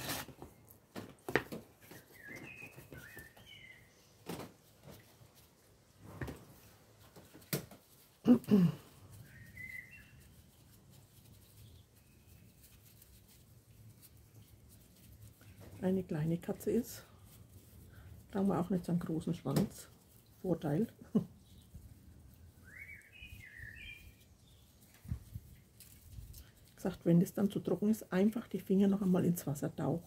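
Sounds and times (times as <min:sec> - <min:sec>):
faint bird chirping: 0:01.8 - 0:04.2, 0:09.1 - 0:10.6, 0:11.4 - 0:12.7, 0:21.1 - 0:25.6.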